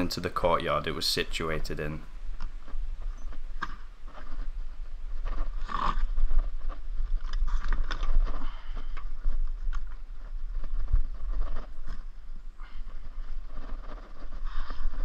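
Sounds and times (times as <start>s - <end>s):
wind rumble on microphone: 2.1s - 15.0s.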